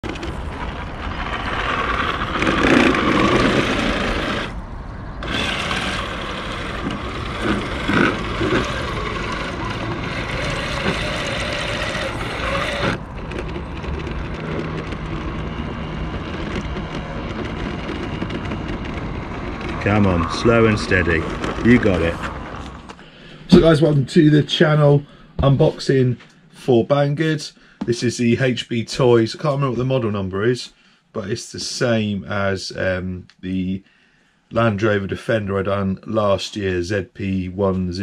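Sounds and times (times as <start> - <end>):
electric motor and gears whining: 0.0 - 25.6
tyres over rough ground: 0.0 - 30.0.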